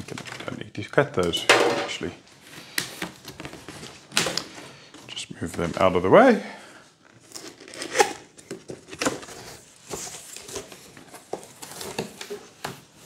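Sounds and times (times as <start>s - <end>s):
cardboard rustling and scraping: 2.4s - 6.0s, 7.2s - 13.0s.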